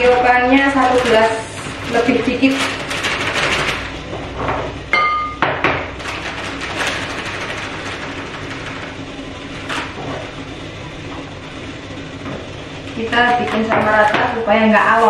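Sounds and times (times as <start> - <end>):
glass clink: 5.0 - 5.4.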